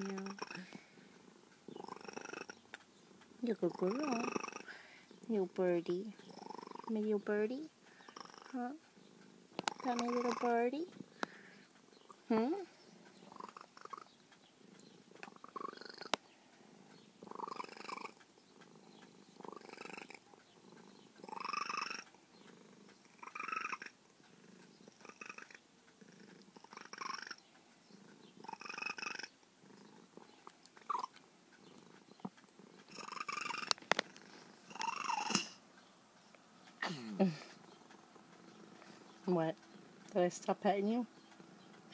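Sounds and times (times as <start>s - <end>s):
cat purring: 0.0s - 41.9s
sharp clicks: 8.9s - 12.2s, 13.0s - 16.3s, 28.4s - 36.8s.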